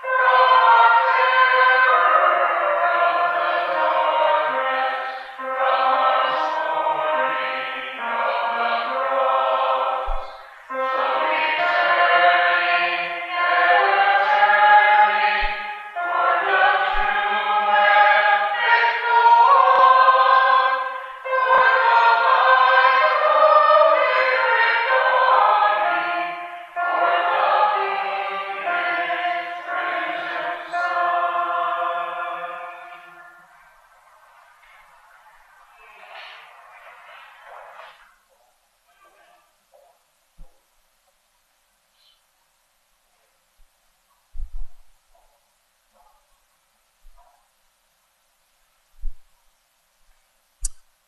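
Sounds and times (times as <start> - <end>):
congregation singing a hymn: 0.0 - 38.2.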